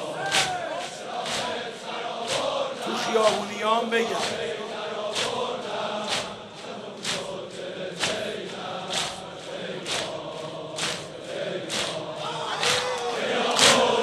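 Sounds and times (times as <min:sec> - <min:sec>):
crowd of men chanting: 0:00.0 - 0:14.0.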